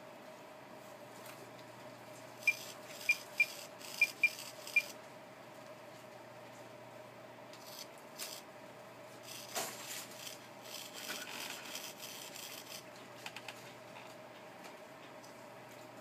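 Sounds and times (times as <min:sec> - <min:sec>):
faint steady hum: 0:00.0 - 0:16.0
servo buzzing and whirring: 0:07.6 - 0:08.4, 0:09.2 - 0:12.8.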